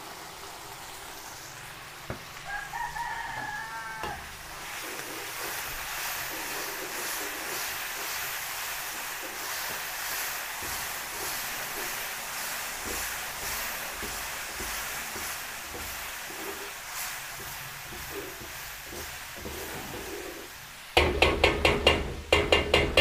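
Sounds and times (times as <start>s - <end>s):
sauce sizzling in a wok: 0.0s - 23.0s
ladle knocking on wok: 3.3s - 23.0s.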